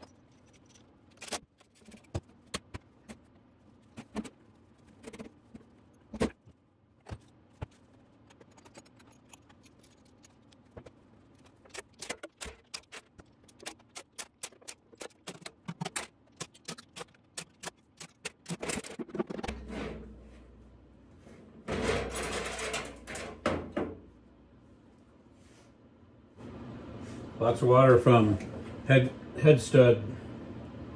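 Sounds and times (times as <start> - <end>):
oil pan scraping: 18.2 - 20.5, 21.6 - 23.4.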